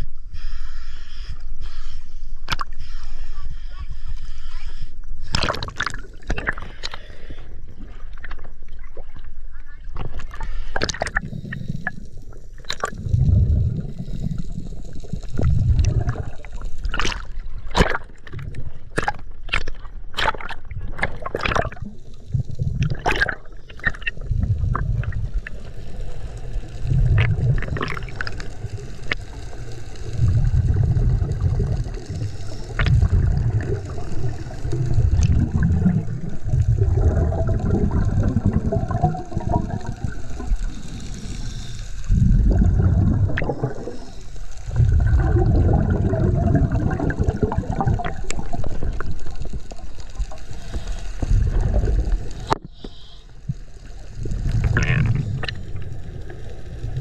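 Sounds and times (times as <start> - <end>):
underwater bubbling rumbles: 5.3 - 52.7, 53.4 - 57.0.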